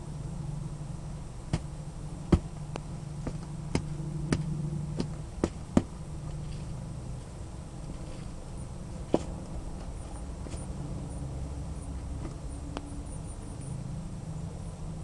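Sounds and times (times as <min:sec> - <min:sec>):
low steady hum: 0:00.0 - 0:15.0
boots stomping on onion: 0:02.3 - 0:02.5.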